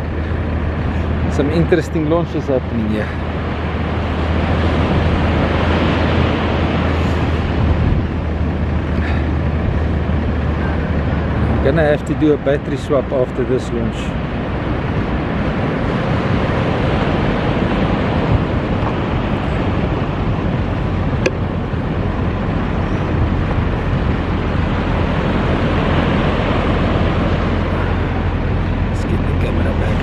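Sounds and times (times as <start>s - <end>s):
surf breaking on beach: 0.0s - 30.0s
wind rumbling on microphone: 0.0s - 30.0s.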